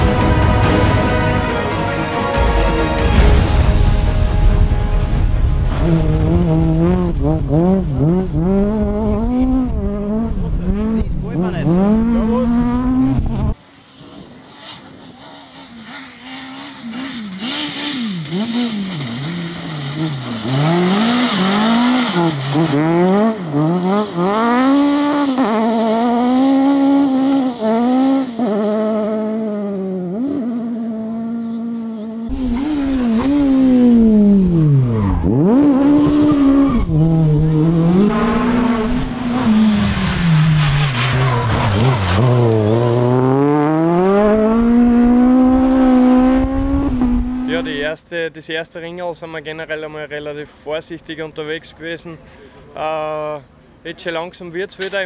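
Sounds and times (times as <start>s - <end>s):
rally car engine revving: 4.7s - 47.9s.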